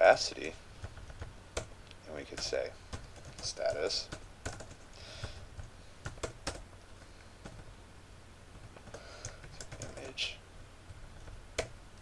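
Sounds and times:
typing on computer keyboard: 0:02.4 - 0:06.6, 0:08.6 - 0:10.1.

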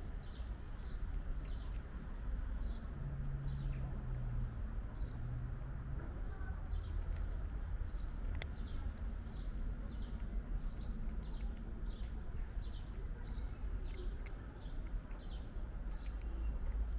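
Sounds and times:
small bird chirping: 0:00.2 - 0:02.0, 0:07.9 - 0:16.9
cat crunching dry kibble: 0:09.7 - 0:16.9.

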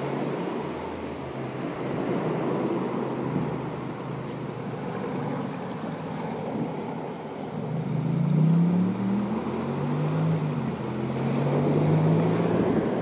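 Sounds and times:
motorboat engine droning: 0:00.0 - 0:13.0
water wash: 0:00.0 - 0:13.0
wind noise: 0:08.8 - 0:13.0.

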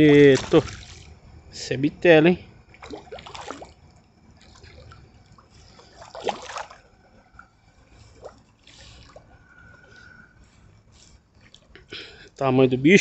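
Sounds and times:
water splashing and trickling: 0:00.0 - 0:10.2.

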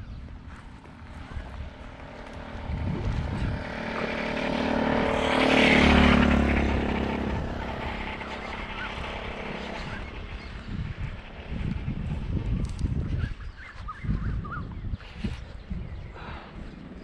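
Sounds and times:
vehicle engine passing by: 0:00.5 - 0:13.2.

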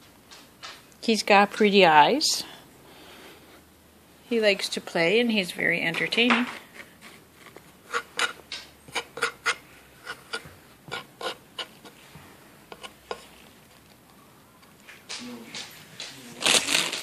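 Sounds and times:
scratching on wooden scratcher: 0:05.8 - 0:12.0, 0:12.7 - 0:13.5.

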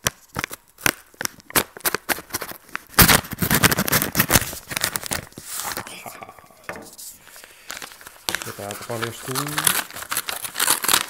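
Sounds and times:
paper tearing and crinkling: 0:01.2 - 0:11.0
knife scraping paper: 0:08.4 - 0:11.0.

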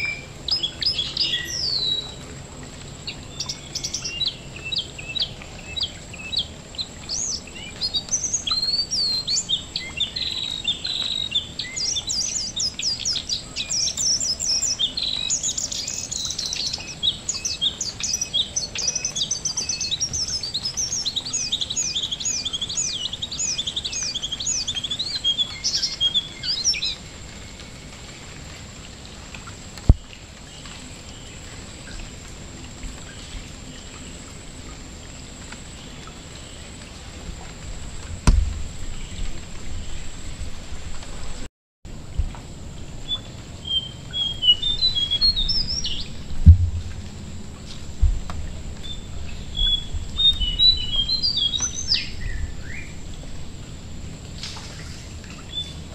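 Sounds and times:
rain dripping onto water: 0:00.0 - 0:55.9
songbird chirping and whistling: 0:43.1 - 0:46.2, 0:48.8 - 0:52.9.

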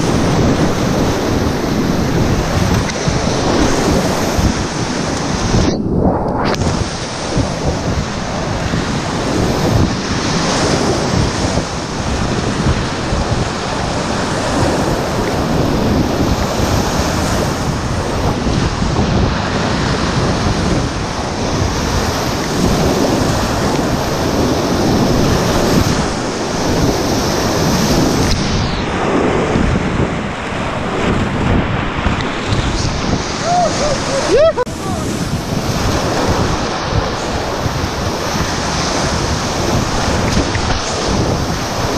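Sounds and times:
whitewater river rushing: 0:00.0 - 0:05.8, 0:20.9 - 0:41.9
wind buffeting microphone: 0:00.0 - 0:41.9.

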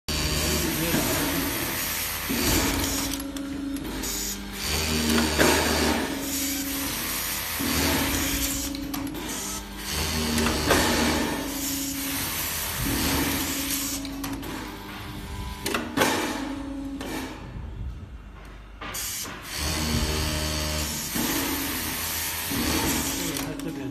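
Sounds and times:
sewing machine stitching hum: 0:00.1 - 0:14.2, 0:19.5 - 0:23.8
mechanical clicks and knocks: 0:02.2 - 0:06.3, 0:07.5 - 0:11.5, 0:12.8 - 0:17.6.

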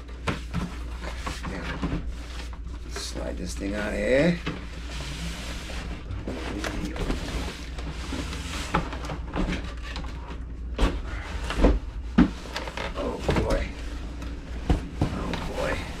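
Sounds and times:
cardboard boxes sliding and scraping: 0:04.7 - 0:09.1.

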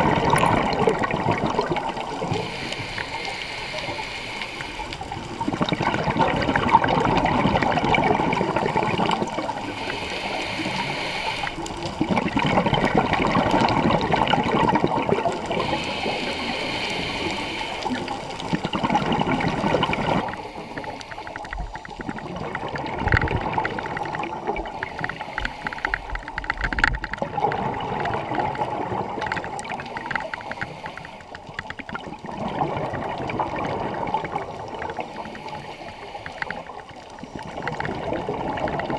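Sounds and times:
exhaled bubbles rushing: 0:00.0 - 0:35.7, 0:36.4 - 0:38.9
scuba regulator breathing: 0:00.1 - 0:05.6, 0:06.5 - 0:12.1, 0:15.3 - 0:22.1, 0:24.6 - 0:26.8, 0:29.8 - 0:31.7, 0:34.8 - 0:37.6
fine crackling clicks: 0:00.1 - 0:32.4, 0:33.2 - 0:38.9.

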